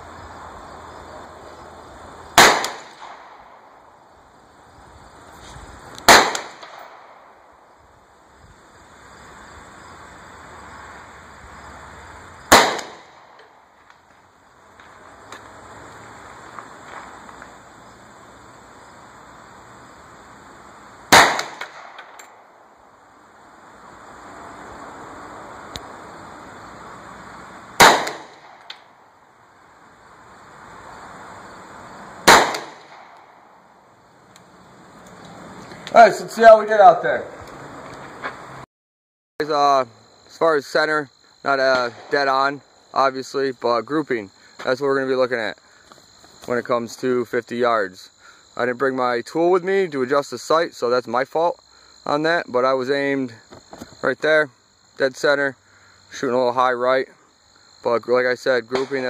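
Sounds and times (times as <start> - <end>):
gunshots with short echo: 2.4 - 3.7, 6.1 - 7.3, 12.5 - 13.4, 21.1 - 22.4, 27.8 - 28.8, 32.2 - 33.4.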